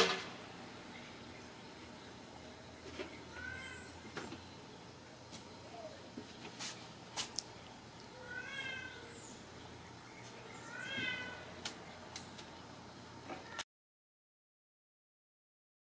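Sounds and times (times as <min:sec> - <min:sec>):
kittens mewing: 0:03.3 - 0:04.0, 0:08.1 - 0:09.2, 0:10.6 - 0:11.5.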